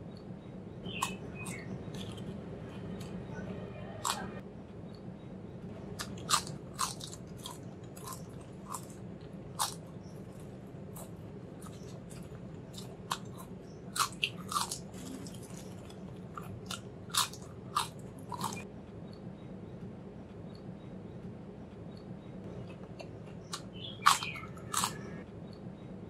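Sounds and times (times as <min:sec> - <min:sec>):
potato chips crunching: 0:00.9 - 0:03.2, 0:04.0 - 0:04.3, 0:06.0 - 0:18.6, 0:23.5 - 0:25.1.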